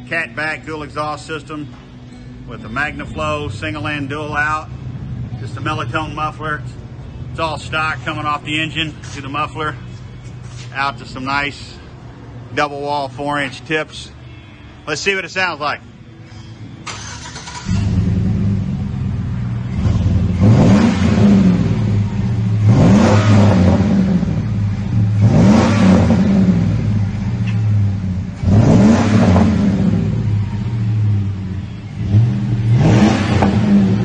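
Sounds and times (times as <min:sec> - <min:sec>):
engine starting: 0:16.8 - 0:18.2
engine revving: 0:16.9 - 0:34.0.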